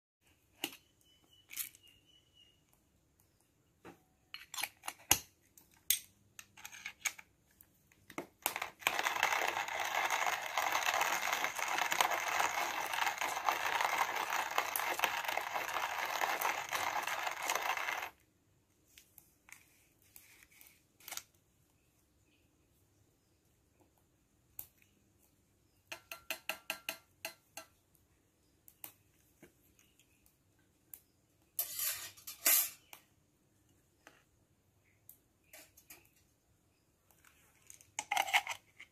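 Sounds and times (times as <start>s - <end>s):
coffee beans crunching in grinder: 8.4s - 18.2s.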